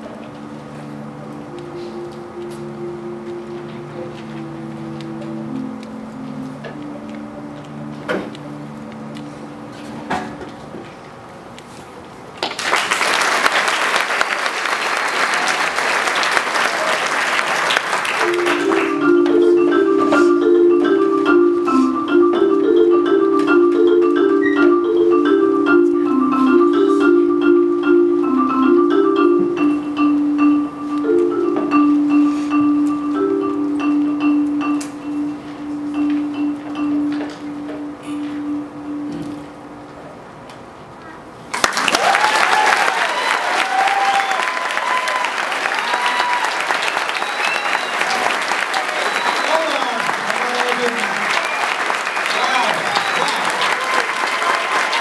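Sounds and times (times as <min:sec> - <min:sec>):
marimba played with mallets: 0:00.0 - 0:10.1, 0:18.2 - 0:39.8.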